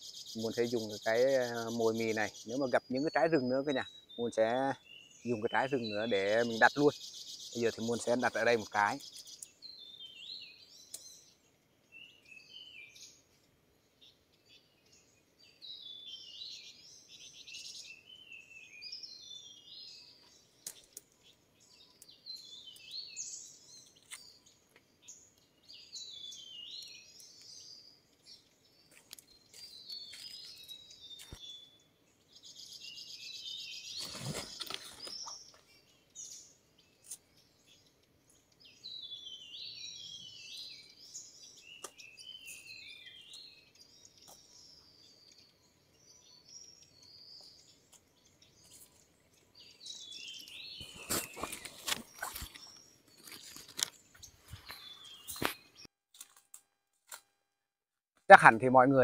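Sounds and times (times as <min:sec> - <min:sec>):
small birds chirping: 0:00.0 - 0:57.3, 0:58.2 - 0:59.0
rustle of handling: 0:50.8 - 0:55.6.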